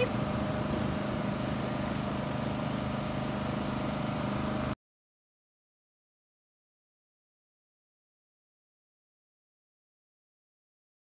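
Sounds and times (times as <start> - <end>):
small engines idling: 0.0 - 4.8.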